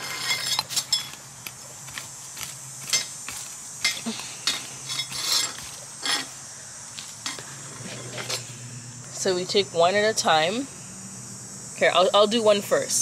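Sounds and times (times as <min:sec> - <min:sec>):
hand rake scraping soil: 0:00.0 - 0:06.4.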